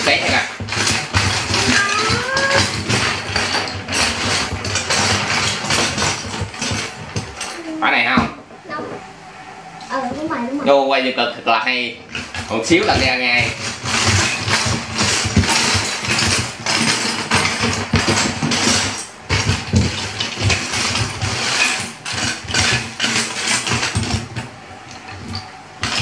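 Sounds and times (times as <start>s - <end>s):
spinning top rattling on table: 0.0s - 7.5s.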